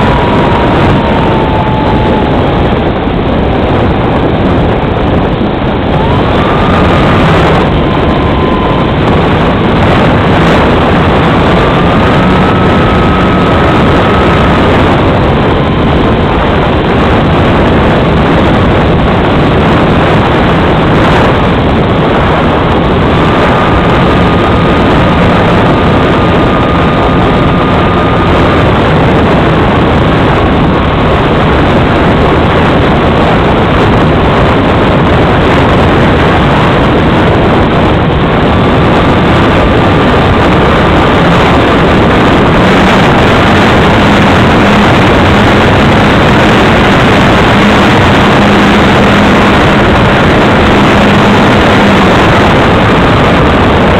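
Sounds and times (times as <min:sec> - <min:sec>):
motor and propeller whine: 0:00.0 - 0:53.9
wind rushing over model plane: 0:00.0 - 0:53.9.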